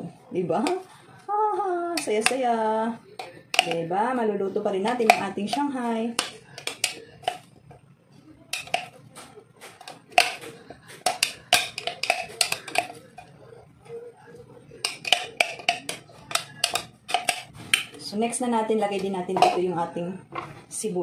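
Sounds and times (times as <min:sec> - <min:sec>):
plastic bowl knocks and taps: 0:09.7 - 0:13.0.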